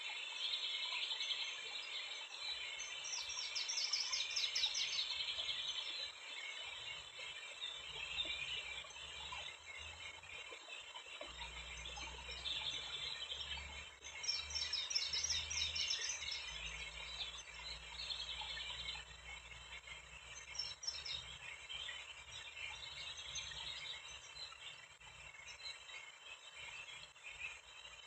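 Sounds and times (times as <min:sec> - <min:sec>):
small birds chirping and singing: 0:00.0 - 0:28.0.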